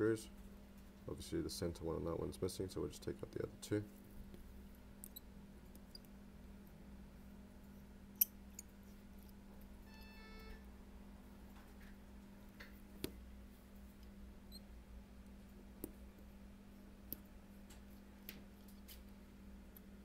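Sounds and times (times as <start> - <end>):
low electrical hum: 0.0 - 20.0
faint metallic ring: 9.8 - 10.7.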